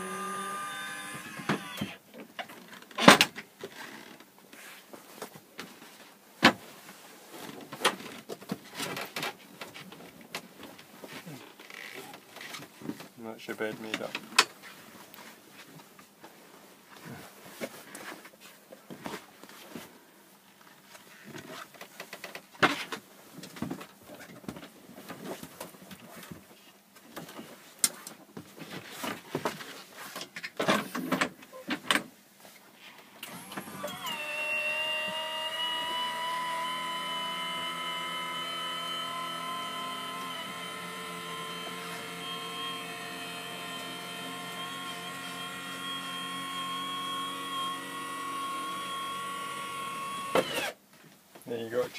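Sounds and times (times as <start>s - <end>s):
electric motor whining: 0.0s - 2.0s, 33.2s - 50.8s.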